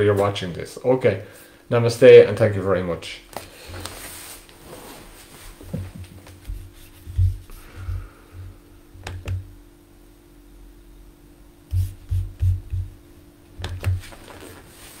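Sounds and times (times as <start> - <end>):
faint steady hum: 0.0 - 15.0
handling bumps and knocks: 5.5 - 8.0, 13.6 - 14.7.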